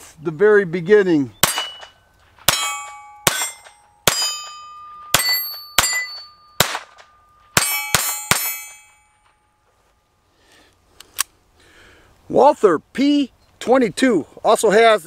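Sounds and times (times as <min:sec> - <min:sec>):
pistol shots: 0:01.4 - 0:08.8
steel targets ringing: 0:01.4 - 0:09.6.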